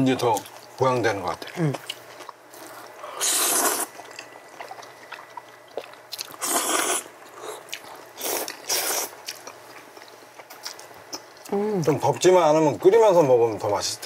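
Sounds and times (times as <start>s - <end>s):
quiet chewing: 0.2s - 12.4s
loud noodle slurps: 3.2s - 3.9s, 6.4s - 7.0s, 8.2s - 9.1s.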